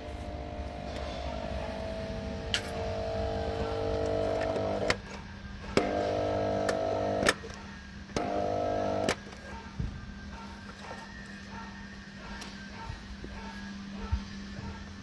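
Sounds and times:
pressure washer motor humming: 0.0 - 5.2, 5.8 - 7.5, 8.1 - 9.4.

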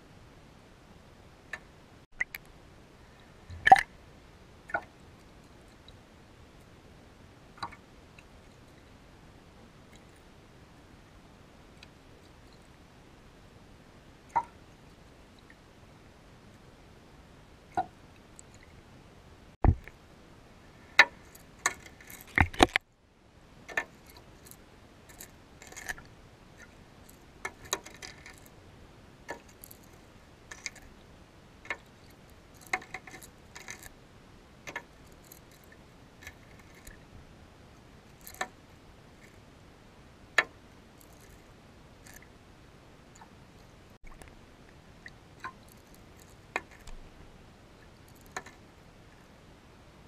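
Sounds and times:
underwater clicks and knocks: 3.5 - 3.9, 19.6 - 20.0, 21.0 - 22.8.

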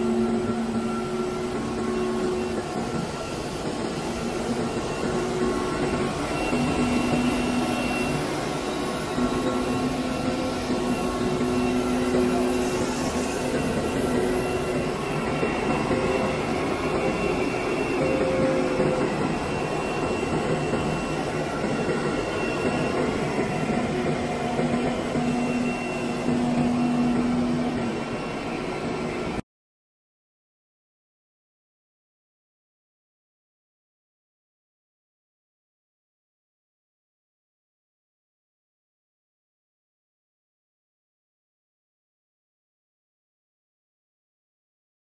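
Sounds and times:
machinery hum and whir: 0.0 - 29.4.

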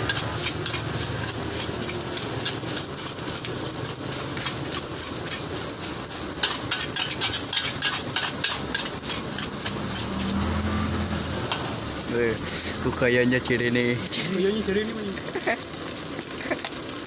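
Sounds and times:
spatula clanking against wok: 0.0 - 2.7, 6.4 - 10.4
metal spatula scraping: 0.0 - 11.8
rice sizzling in a wok: 0.0 - 17.0.

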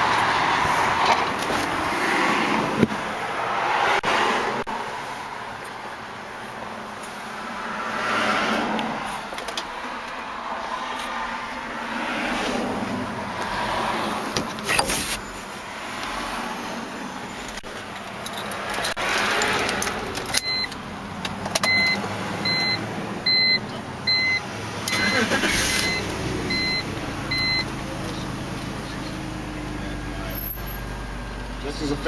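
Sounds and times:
car engine and road hum: 0.0 - 32.0
short electronic beeps: 20.4 - 20.7, 21.7 - 25.2, 25.8 - 27.7.

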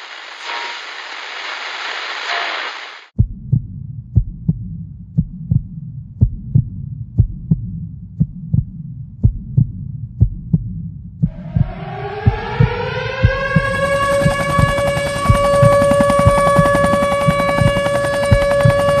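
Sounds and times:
hissing noise: 0.0 - 3.1
heartbeat thumps: 3.2 - 19.0
low hum: 3.2 - 19.0
rising siren-like wail: 11.3 - 19.0.

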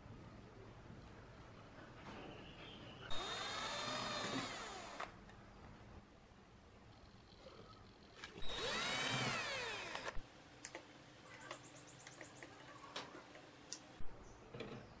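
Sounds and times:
cordless drill motor whirring: 3.1 - 5.2, 8.4 - 10.2.

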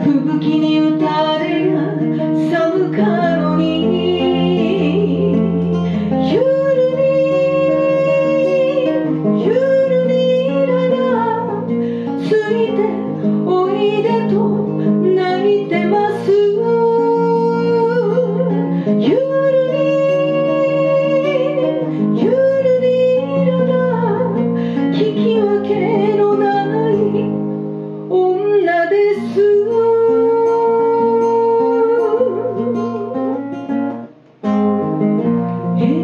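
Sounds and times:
woman singing into a microphone: 0.0 - 34.2, 35.4 - 36.0
strummed acoustic guitar: 0.0 - 36.0.

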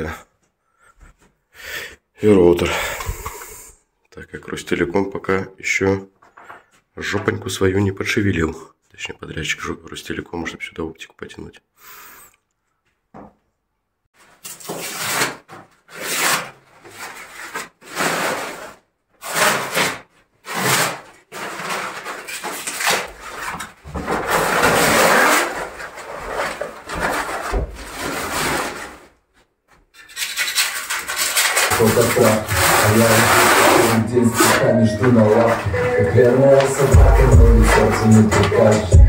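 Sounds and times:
wallpaper ripping and scraping: 14.2 - 39.0.

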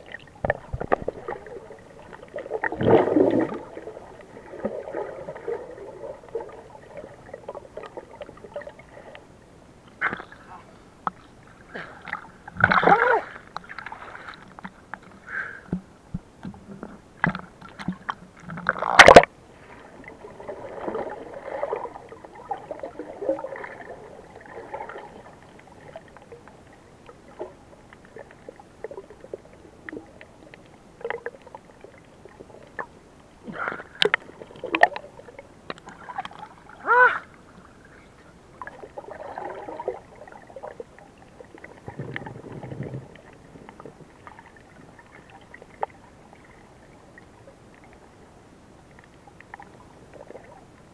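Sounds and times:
bubbly bursts: 0.0 - 8.8
underwater gurgling and sloshing: 0.0 - 50.9.

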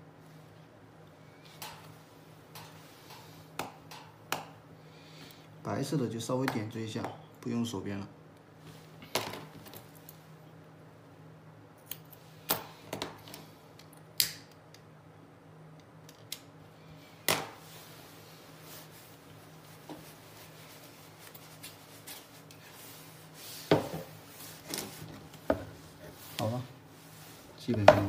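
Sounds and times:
tools set down on table: 9.0 - 9.8.

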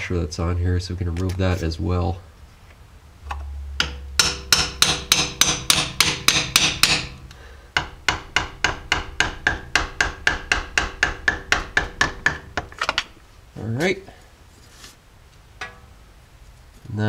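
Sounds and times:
hammer striking chisel: 3.8 - 13.0.

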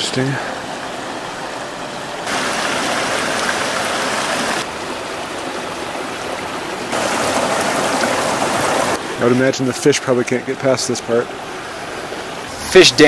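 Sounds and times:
water rushing through wooden channel: 0.0 - 13.0.

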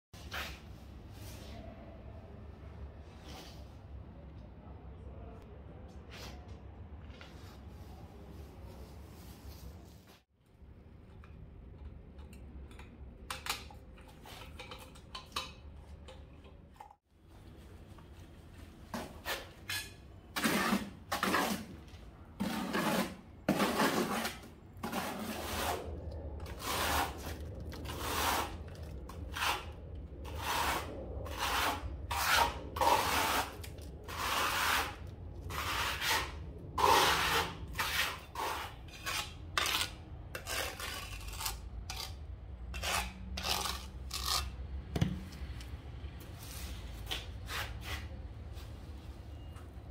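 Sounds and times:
steel trowel scraping mortar: 19.2 - 21.8, 22.4 - 44.6.

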